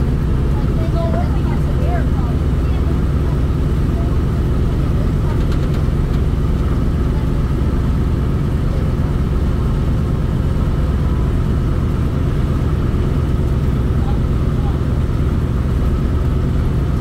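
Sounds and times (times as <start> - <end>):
piston engines running: 0.0 - 17.0.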